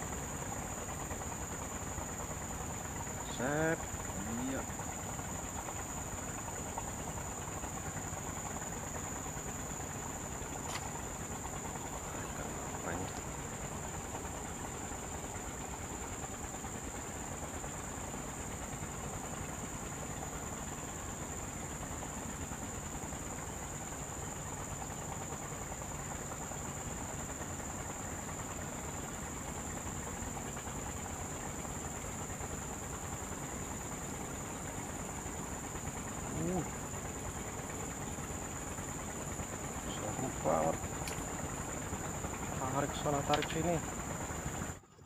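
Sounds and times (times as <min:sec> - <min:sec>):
even hiss: 0:02.7 - 0:04.9, 0:26.0 - 0:44.7.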